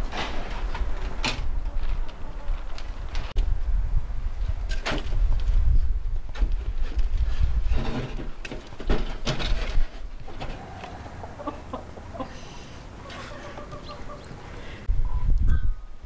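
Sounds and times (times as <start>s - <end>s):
chickens clucking: 10.2s - 14.9s.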